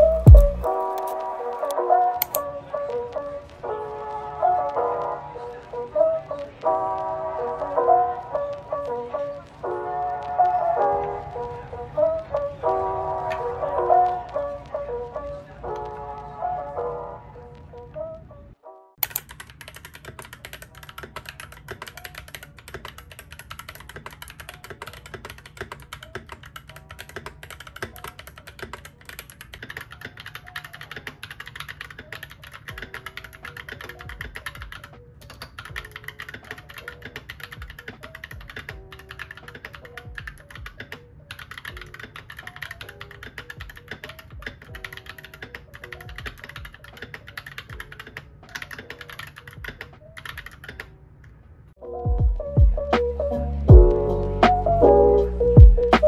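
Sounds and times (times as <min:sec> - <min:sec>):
mechanical keyboard typing: 0:00.0 - 0:02.4, 0:19.0 - 0:50.9
soft background music: 0:00.0 - 0:56.0.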